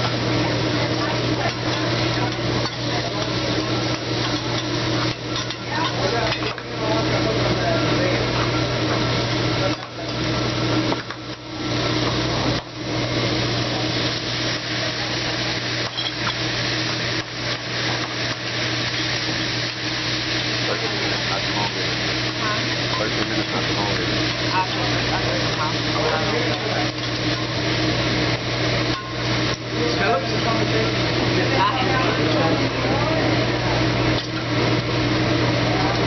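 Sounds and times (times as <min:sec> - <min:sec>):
food sizzling: 0:00.0 - 0:36.0
metal spatulas scraping on griddle: 0:15.8 - 0:16.4.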